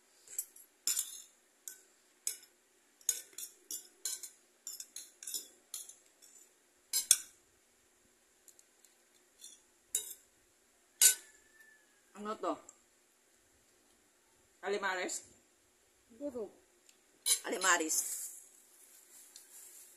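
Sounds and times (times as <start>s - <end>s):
cutlery clinking on ceramic plate: 0.3s - 6.4s, 7.0s - 7.3s, 9.4s - 10.2s, 11.0s - 11.4s, 17.3s - 17.6s.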